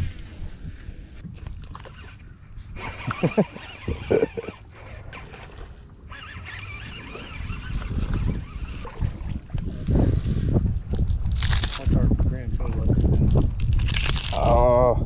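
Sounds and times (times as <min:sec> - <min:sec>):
wind rumble on microphone: 0:00.0 - 0:04.4, 0:05.2 - 0:15.0
fishing reel whirring: 0:01.7 - 0:02.2, 0:02.8 - 0:10.5.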